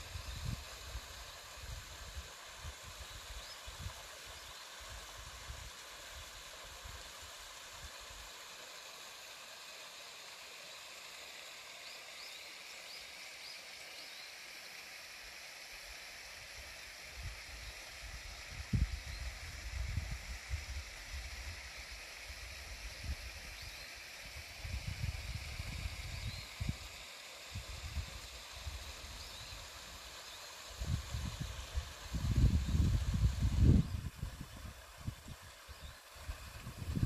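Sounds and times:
stream running over rocks: 0.0s - 37.0s
faint bird chirps: 11.5s - 14.5s, 23.4s - 24.1s, 25.2s - 27.0s.

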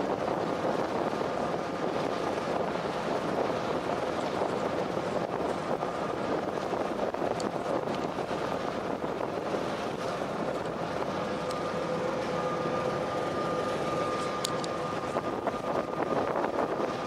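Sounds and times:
ferry engines droning: 0.0s - 17.0s
rush of boat wake: 0.0s - 17.0s
faint steady whine: 10.2s - 17.0s.

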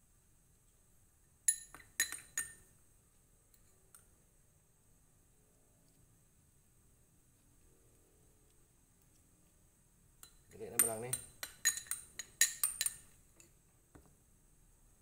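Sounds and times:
metal spoon clinking: 1.5s - 2.7s, 10.2s - 13.5s.

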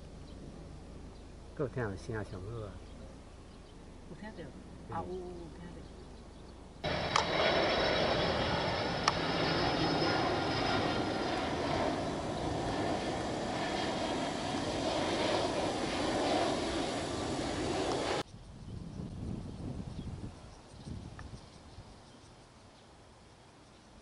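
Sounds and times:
jet plane passing overhead: 0.0s - 18.3s.

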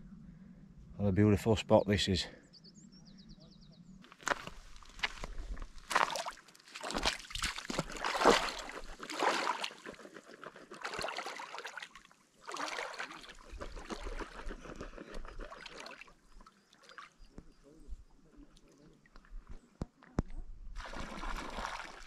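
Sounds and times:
wading footsteps splashing in water: 4.1s - 17.4s, 20.8s - 22.0s.

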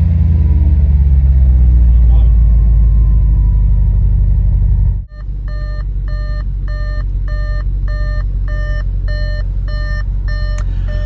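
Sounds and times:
car engine idling: 0.0s - 11.0s
car warning chime beeping: 5.1s - 11.0s.

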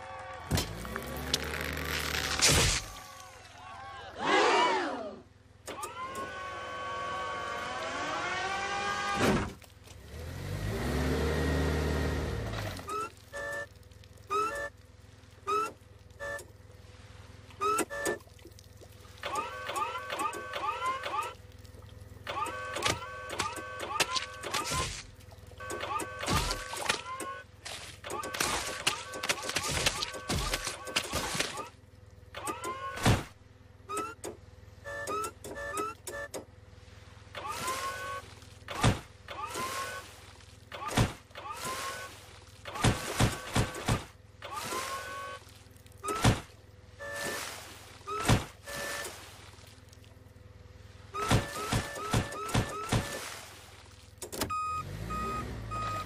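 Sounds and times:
forklift motor humming: 0.0s - 3.3s, 5.4s - 16.8s, 19.2s - 36.8s
forklift motor whining: 0.0s - 3.4s, 5.5s - 13.7s, 19.2s - 21.4s, 22.1s - 25.0s, 25.6s - 29.3s, 29.9s - 36.6s, 37.4s - 47.4s, 54.2s - 56.0s
motor humming: 5.7s - 9.3s
short electronic beeps: 12.8s - 14.8s, 15.4s - 16.5s, 33.9s - 36.4s, 54.5s - 56.0s
short beeps: 54.5s - 56.0s.

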